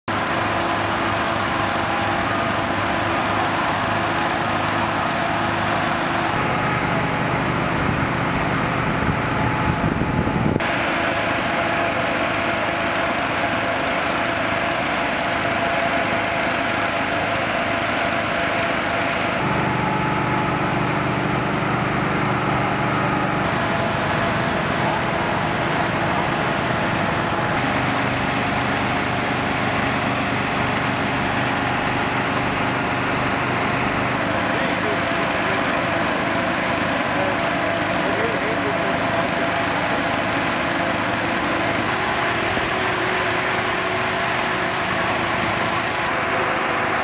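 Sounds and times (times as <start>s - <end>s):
engine running: 0.0s - 47.0s.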